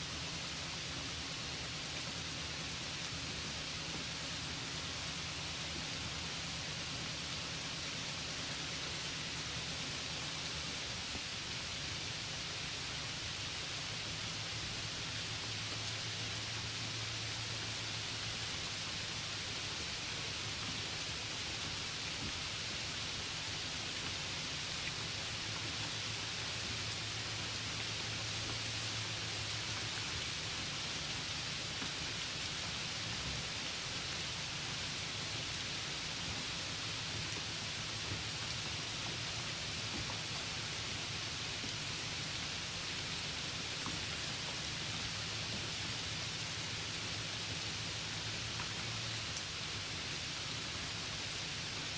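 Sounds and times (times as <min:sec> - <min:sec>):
steady hiss: 0:00.0 - 0:51.9.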